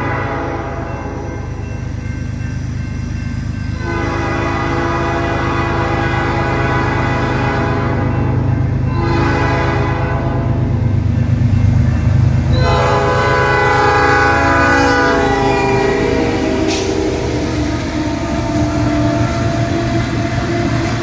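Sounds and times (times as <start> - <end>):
locomotive air horn blasting: 0.0 - 1.1, 3.8 - 10.7, 12.5 - 21.0
diesel engines rumbling: 10.6 - 21.0.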